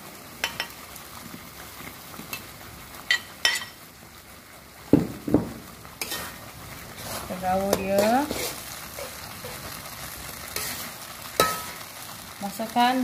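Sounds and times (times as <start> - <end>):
sauce sizzling and bubbling: 0.0 - 13.0.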